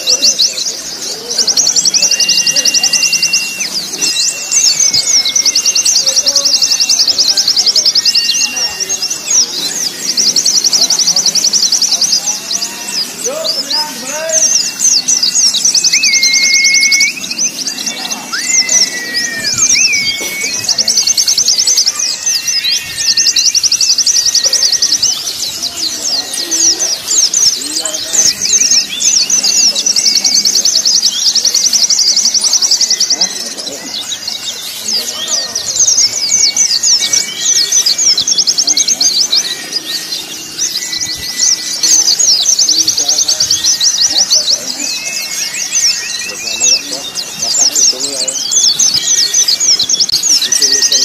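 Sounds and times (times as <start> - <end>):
long level bird whistles: 0.0 - 51.0
bird song fast high notes: 12.2 - 43.0.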